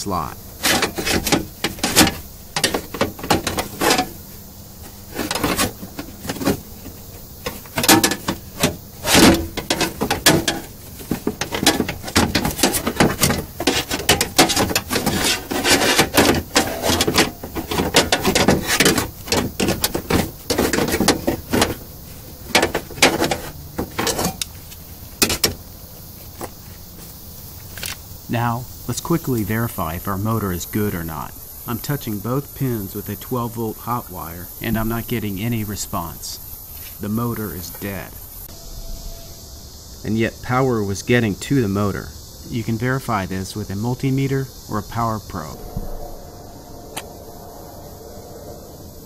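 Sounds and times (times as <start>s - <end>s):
metal clanking and scraping: 0.4s - 26.6s.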